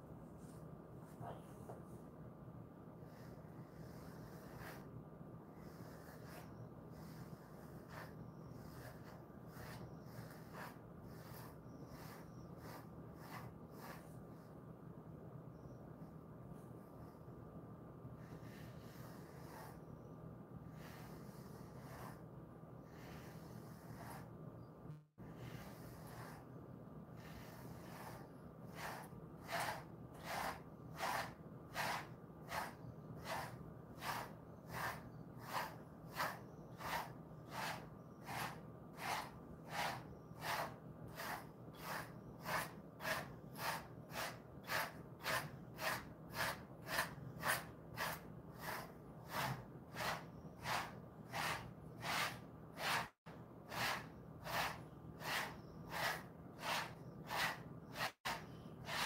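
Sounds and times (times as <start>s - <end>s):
brush strokes through dog fur: 5.5s - 14.4s, 23.0s - 24.3s, 27.2s - 59.0s.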